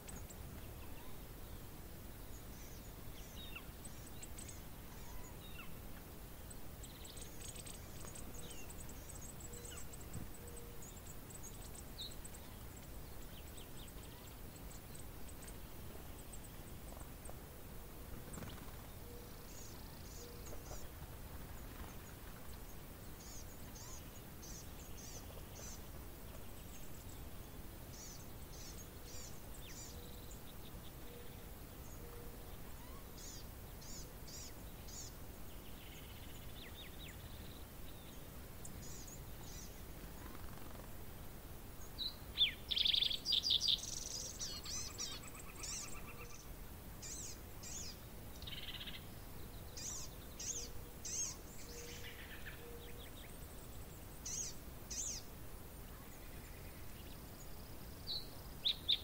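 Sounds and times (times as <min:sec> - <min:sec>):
small bird high chirps: 0:00.0 - 0:01.2, 0:02.6 - 0:05.8, 0:23.2 - 0:25.8, 0:31.1 - 0:35.2, 0:41.9 - 0:49.1, 0:49.7 - 0:53.2, 0:54.2 - 0:55.3
steady outdoor hiss: 0:00.0 - 0:59.0.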